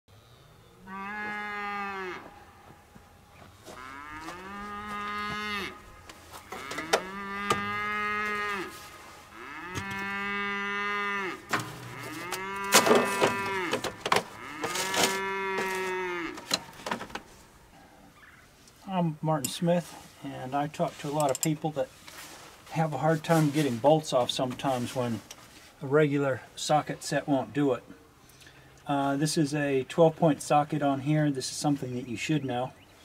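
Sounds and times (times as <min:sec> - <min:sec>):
cattle mooing: 0:00.8 - 0:02.7, 0:03.8 - 0:17.2.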